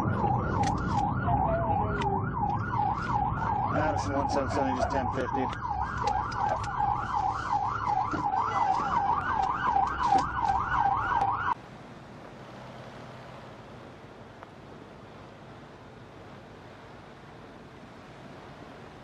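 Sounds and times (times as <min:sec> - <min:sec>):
police siren yelp: 0:00.0 - 0:11.6
scattered clicks: 0:00.5 - 0:01.1, 0:05.4 - 0:06.9.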